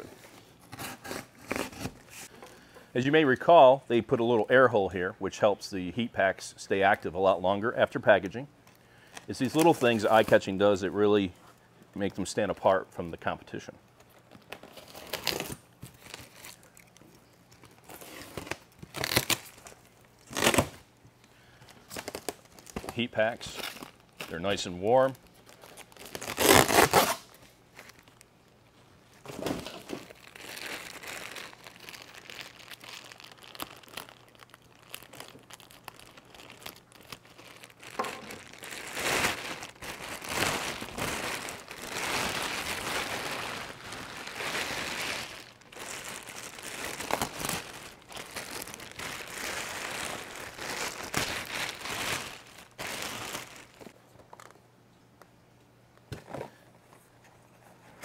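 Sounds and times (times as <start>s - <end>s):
plastic packaging crinkling: 9.0s - 10.6s, 14.0s - 20.8s, 21.6s - 28.3s, 29.2s - 54.6s.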